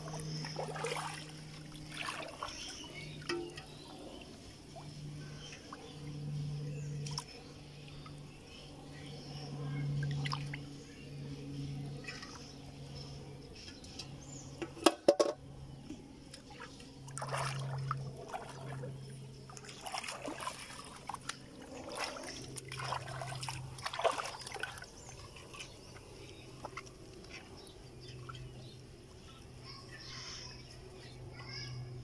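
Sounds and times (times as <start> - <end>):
water splashing and sloshing: 0.0 - 6.3, 6.9 - 8.6, 9.9 - 10.8, 14.6 - 29.6.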